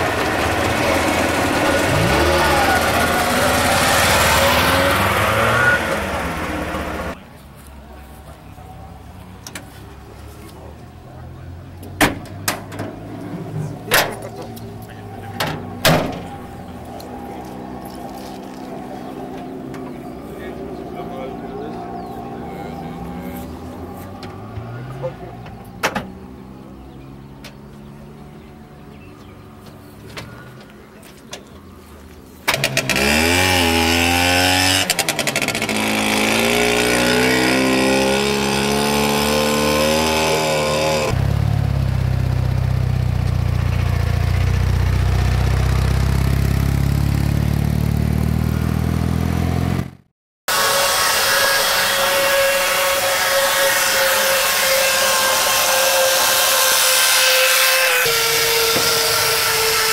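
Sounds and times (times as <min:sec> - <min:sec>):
slot cars electric whine: 0:00.0 - 0:07.2
small car engine starting and revving: 0:00.0 - 0:07.2, 0:08.1 - 0:59.9.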